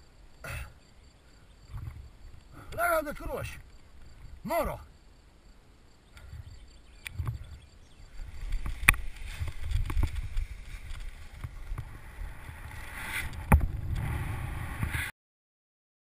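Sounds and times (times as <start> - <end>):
wind buffeting microphone: 6.2 - 15.1.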